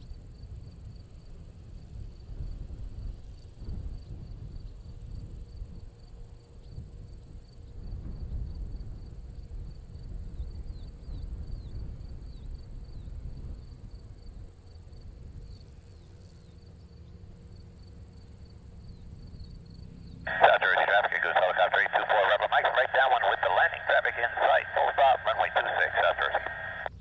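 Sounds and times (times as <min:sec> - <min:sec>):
faint plane engine hum: 0:00.0 - 0:27.0.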